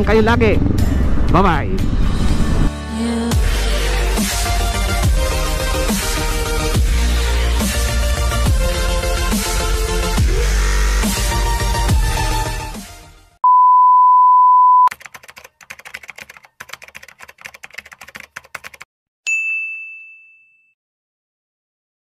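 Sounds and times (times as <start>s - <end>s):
loud steady beep: 13.4s - 14.9s
rapid typewriter typing: 14.9s - 18.9s
bell ding: 19.3s - 20.8s.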